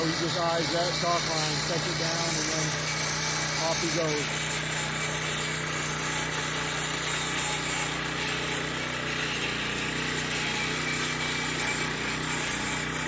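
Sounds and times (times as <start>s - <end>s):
concrete saw cutting: 0.0s - 13.0s.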